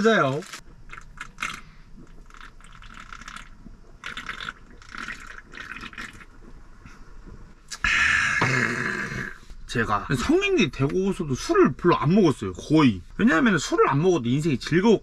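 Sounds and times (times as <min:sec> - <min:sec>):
person gulping beer: 0:00.7 - 0:06.6, 0:07.6 - 0:09.5.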